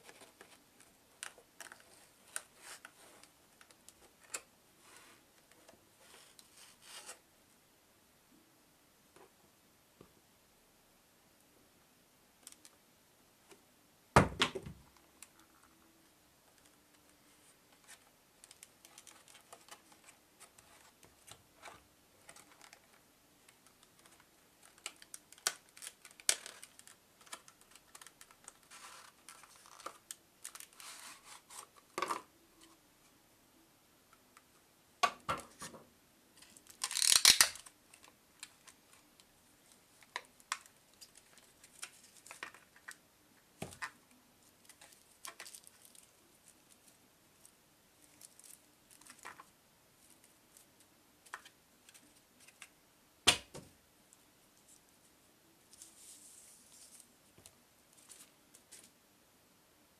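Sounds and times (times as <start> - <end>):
plastic packaging crinkling: 36.4 - 38.5.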